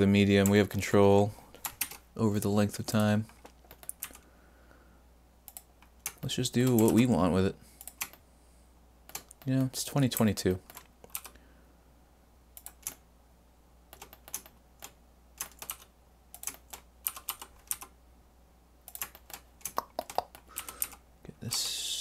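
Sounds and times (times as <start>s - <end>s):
computer keyboard keys clicking: 3.4s - 4.2s, 5.5s - 7.0s, 7.8s - 8.2s, 10.2s - 11.4s, 12.6s - 13.0s, 13.9s - 17.9s, 18.9s - 21.0s.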